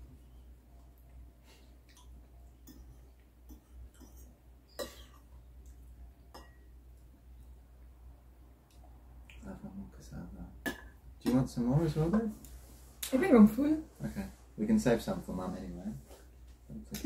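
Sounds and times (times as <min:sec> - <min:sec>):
cutlery clinking on ceramic bowls: 0:06.4 - 0:06.7.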